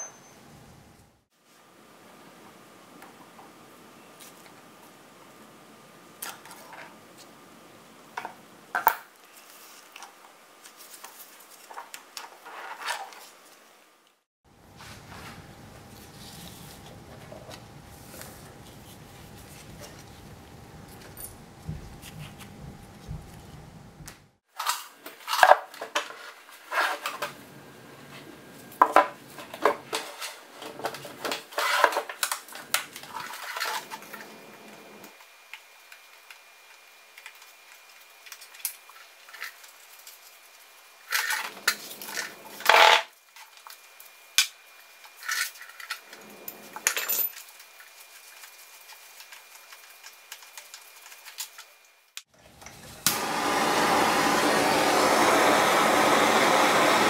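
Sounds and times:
metal parts clinking and clanking: 0:45.2 - 0:47.5.

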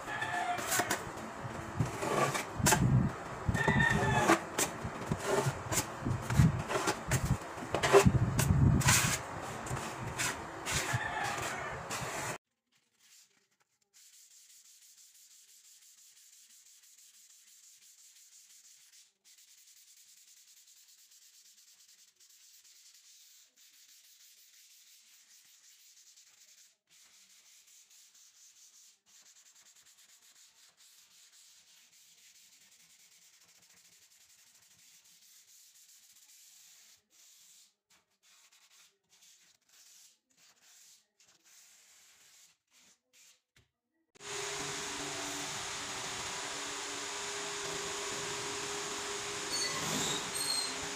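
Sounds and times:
sandpaper scratching on wood: 0:01.8 - 0:12.4, 0:14.0 - 0:43.4, 0:45.8 - 0:50.9.

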